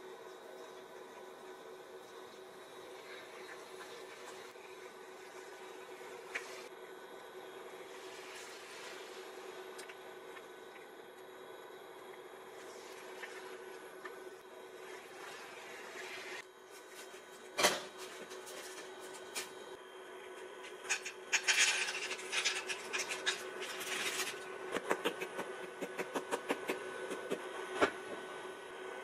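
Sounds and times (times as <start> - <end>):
steady low hum: 0.0 - 29.0
utensils scraping in frying pan: 20.9 - 24.4.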